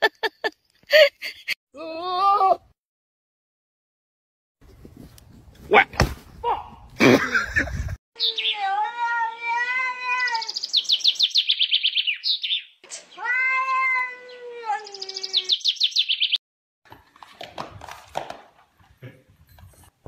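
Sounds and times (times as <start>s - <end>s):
cat yowling: 8.4s - 10.5s, 13.2s - 15.4s.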